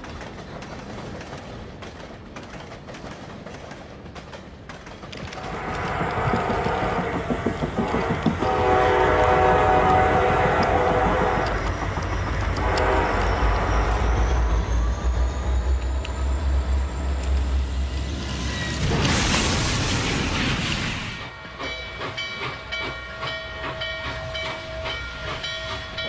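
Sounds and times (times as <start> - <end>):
train horn blasts: 5.4 - 14.5.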